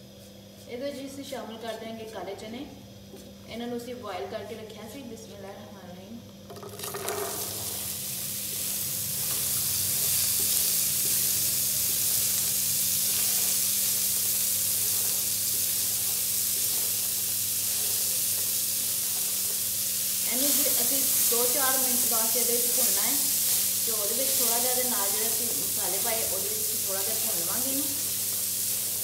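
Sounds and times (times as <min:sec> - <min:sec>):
chickpeas sizzling in oil: 0:06.5 - 0:29.0
spatula stirring in pan: 0:07.7 - 0:29.0.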